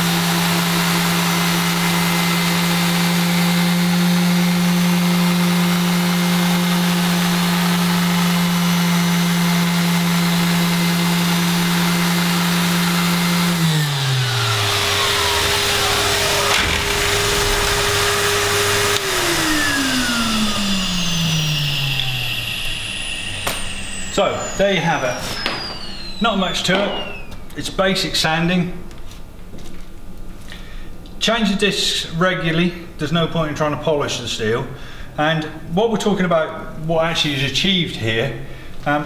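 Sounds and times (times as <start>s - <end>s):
orbital sander on metal: 0.0s - 27.4s
vacuum cleaner motor: 0.0s - 27.6s.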